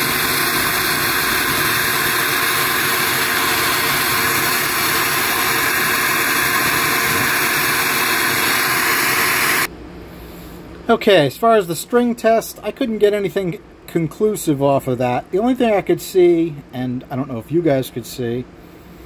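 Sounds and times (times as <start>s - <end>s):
loud rush of air: 0.0s - 10.7s.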